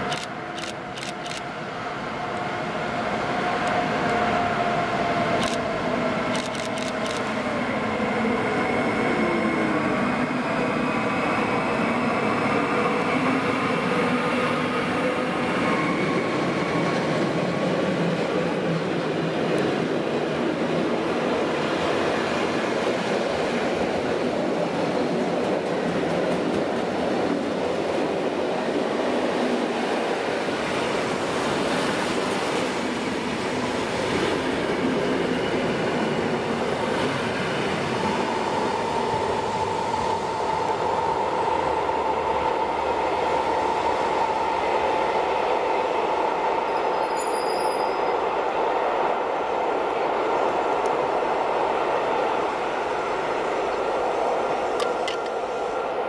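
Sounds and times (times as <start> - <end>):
freight train rolling past: 1.5 - 56.0
high wheel squeal: 46.8 - 48.2.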